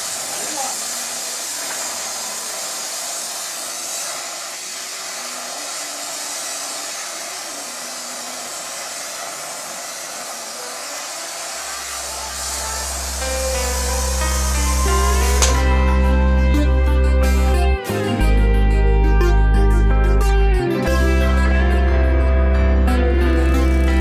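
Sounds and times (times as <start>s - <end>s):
torch flame hissing: 0.0s - 18.2s.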